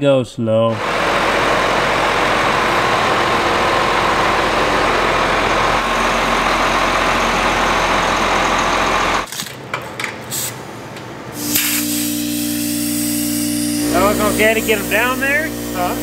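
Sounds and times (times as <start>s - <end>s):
air compressor humming: 0.7s - 16.0s
tractor diesel engine running: 0.8s - 9.3s, 13.6s - 16.0s.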